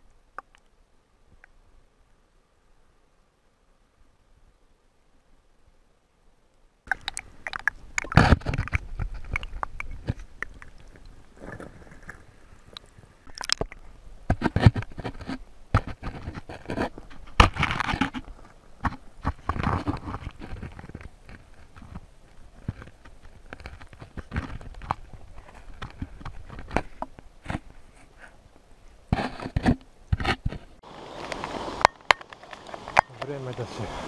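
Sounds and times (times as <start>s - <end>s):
rushes of moving water: 6.9s - 14.0s, 30.8s - 34.0s
scrapes and knocks on stones: 6.9s - 28.4s, 29.1s - 30.8s.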